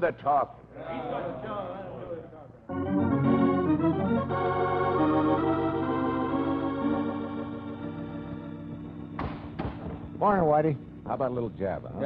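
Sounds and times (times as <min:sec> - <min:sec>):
sustained organ chords: 0:02.6 - 0:12.0.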